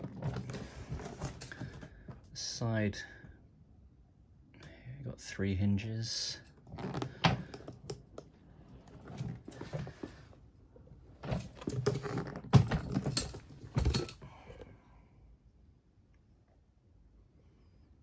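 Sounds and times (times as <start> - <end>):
suitcase clicks and knocks: 0.0 - 1.9, 11.2 - 14.2.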